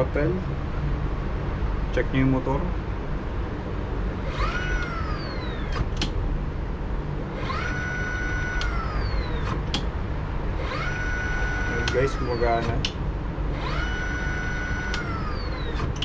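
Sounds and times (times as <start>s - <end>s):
electric motor whine: 4.1s - 6.1s, 7.2s - 16.0s
sharp clicks: 4.3s - 6.2s, 7.4s - 9.9s, 10.6s - 13.0s, 13.6s - 16.0s.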